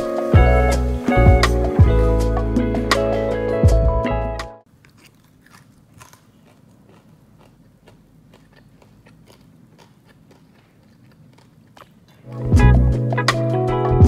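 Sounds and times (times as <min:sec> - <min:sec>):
faint crunching chewing: 0:04.7 - 0:12.5.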